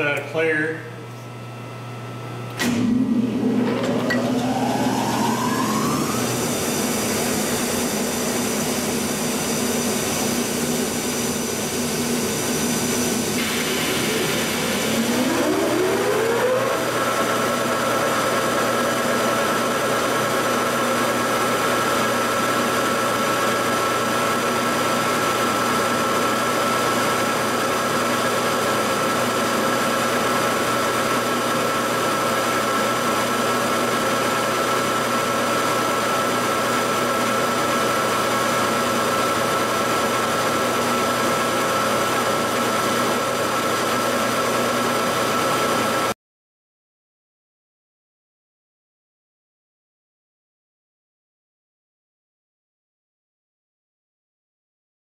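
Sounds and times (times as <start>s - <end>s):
lathe spindle gear whine: 2.6s - 46.0s.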